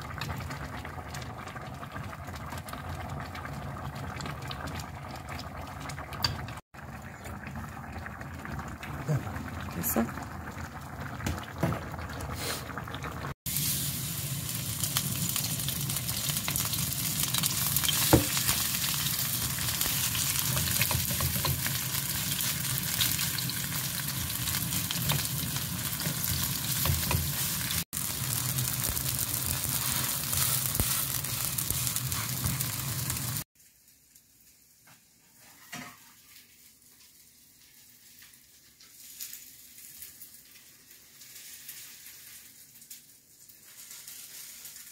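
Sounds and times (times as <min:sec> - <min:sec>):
batter sizzling in frying pan: 0:13.2 - 0:44.9
wooden spatula stirring: 0:19.4 - 0:27.8, 0:29.6 - 0:32.8.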